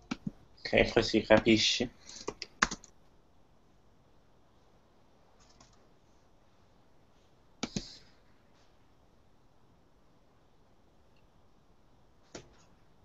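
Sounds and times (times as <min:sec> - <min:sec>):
computer keys and mouse clicks: 0:02.1 - 0:03.0, 0:05.4 - 0:05.8, 0:07.6 - 0:08.0.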